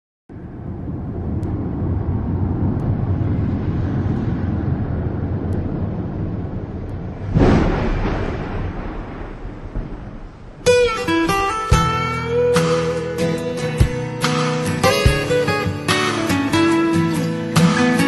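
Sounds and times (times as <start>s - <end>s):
low rumbling sound effect: 0.3s - 11.9s.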